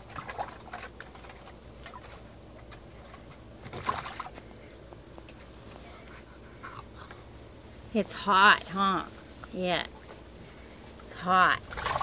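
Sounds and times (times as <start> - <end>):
water splashing in pool: 0.0 - 4.4, 11.2 - 12.0.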